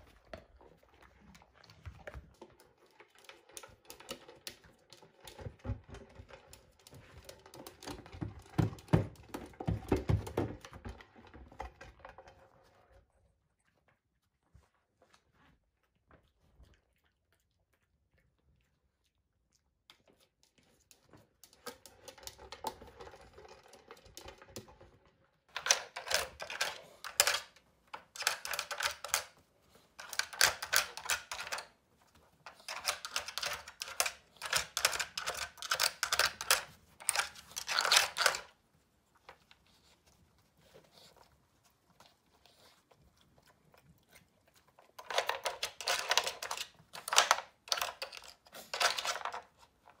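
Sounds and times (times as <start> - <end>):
plastic clattering and rattling: 3.2 - 12.5, 21.6 - 29.4, 32.5 - 38.5, 45.0 - 49.7
dog crunching treats: 25.5 - 38.6, 40.5 - 50.0.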